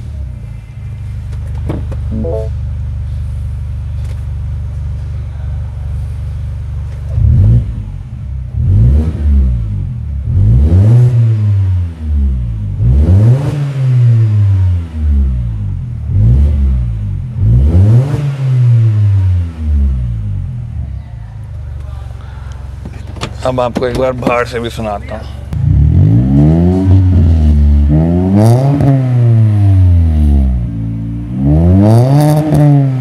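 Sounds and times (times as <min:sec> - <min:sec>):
car engine idling: 0:00.0 - 0:08.8, 0:19.9 - 0:25.9
car engine revving: 0:06.0 - 0:20.7, 0:24.8 - 0:33.0.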